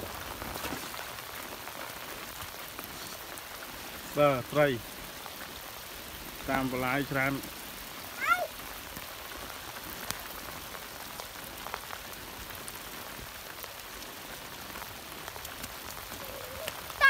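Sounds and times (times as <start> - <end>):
steady rain falling: 0.0 - 17.0.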